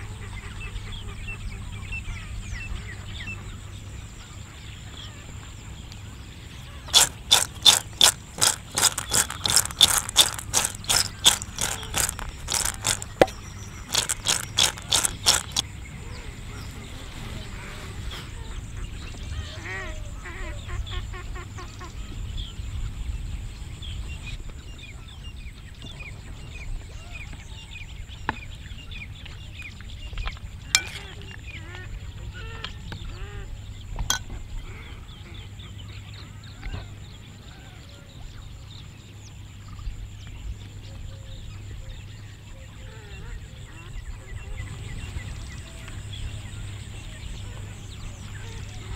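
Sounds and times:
sharp clinks: 30.8s - 31.1s.

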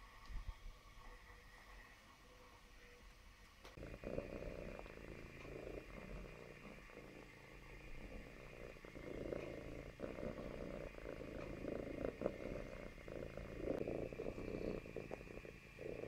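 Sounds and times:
cat purring: 3.7s - 16.0s.

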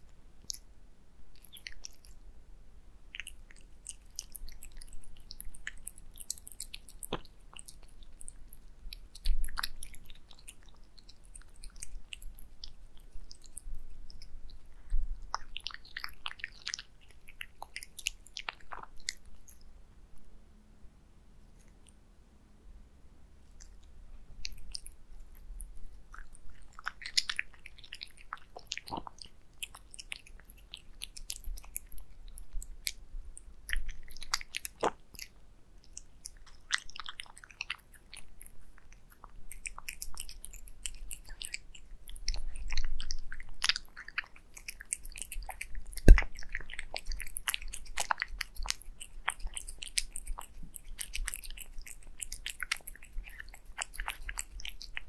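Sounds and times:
cat chewing wet food: 0.0s - 0.7s, 1.3s - 2.2s, 3.1s - 19.7s, 23.4s - 55.0s.

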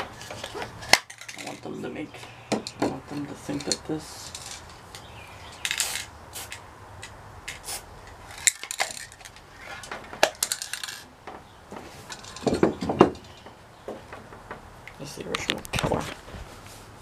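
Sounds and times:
sharp clicks and knocks: 2.2s - 16.0s
spray can hissing: 5.6s - 6.6s.

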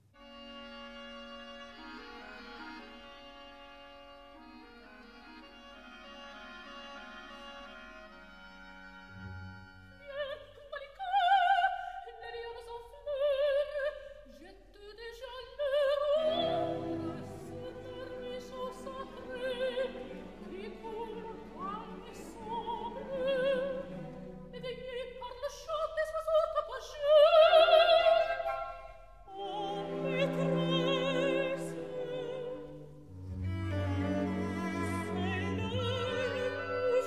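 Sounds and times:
operatic high voice singing: 15.0s - 32.8s
orchestral accompaniment: 16.0s - 25.4s, 28.0s - 37.0s.

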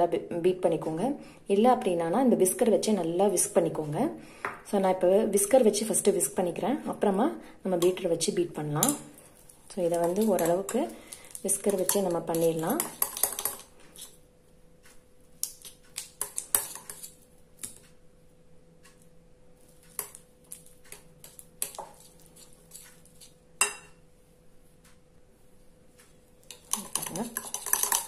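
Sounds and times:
whisk clicking and scraping bowl: 8.8s - 14.2s, 14.9s - 17.8s, 19.6s - 23.8s, 26.4s - 28.0s.

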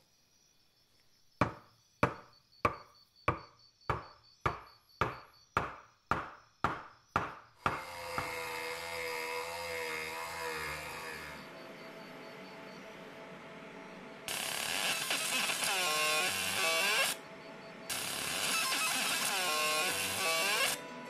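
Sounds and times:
rotary tool whining: 7.7s - 12.8s, 14.3s - 20.9s.

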